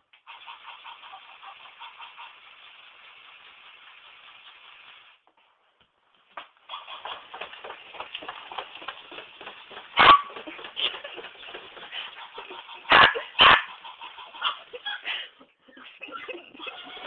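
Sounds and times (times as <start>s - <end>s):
dog barking: 10.0s - 10.4s, 12.9s - 13.8s.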